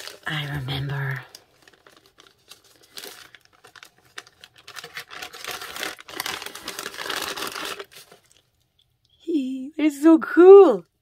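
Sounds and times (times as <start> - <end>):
paper crinkling: 0.0 - 8.7.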